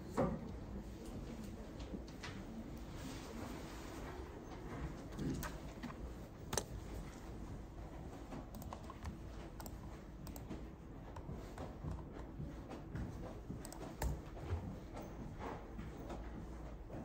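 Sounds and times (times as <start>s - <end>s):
computer mouse clicks: 5.2s - 6.8s, 8.4s - 11.3s, 13.6s - 14.2s.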